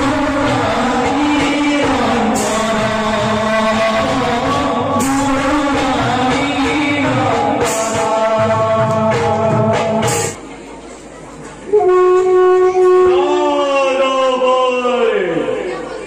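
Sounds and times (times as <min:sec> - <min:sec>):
man chanting: 0:00.0 - 0:10.4
person singing: 0:00.0 - 0:10.4
sharp percussion strikes: 0:00.0 - 0:10.5.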